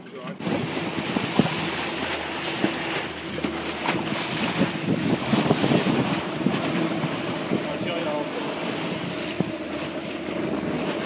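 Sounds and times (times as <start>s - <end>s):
water splashing against hull: 0.0s - 11.0s
wind buffeting the microphone: 0.0s - 11.0s.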